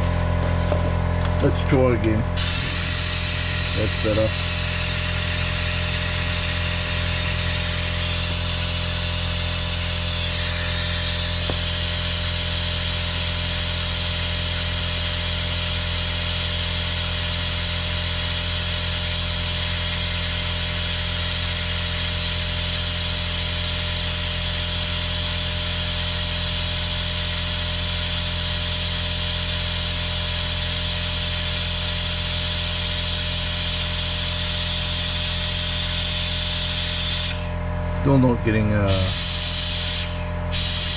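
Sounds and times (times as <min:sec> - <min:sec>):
compressed air hissing: 0:02.4 - 0:13.1, 0:38.9 - 0:40.9.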